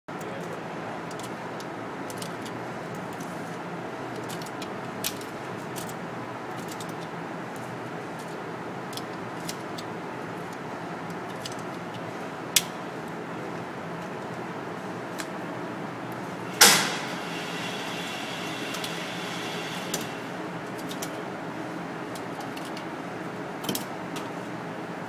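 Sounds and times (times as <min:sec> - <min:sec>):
small clicks and handling noises: 0:00.2 - 0:13.2, 0:20.8 - 0:21.2, 0:22.1 - 0:22.9
sharp crack: 0:16.6 - 0:17.3.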